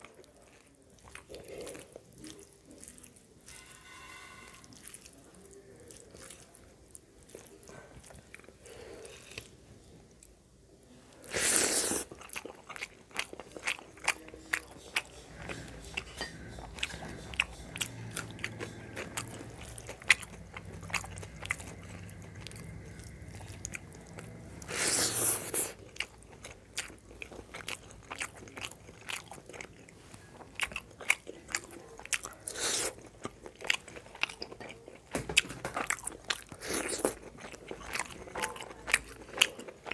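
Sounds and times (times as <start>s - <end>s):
wet chewing: 0.0s - 3.6s, 4.6s - 10.4s, 11.1s - 39.9s.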